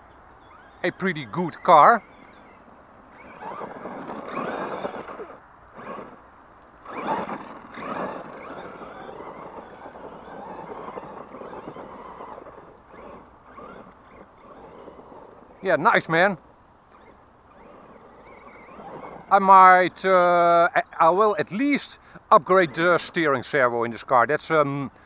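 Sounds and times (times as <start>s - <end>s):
tyres scrabbling on dirt: 0.0s - 20.1s, 21.2s - 23.6s
electric motor whine: 0.4s - 6.2s, 6.8s - 19.4s.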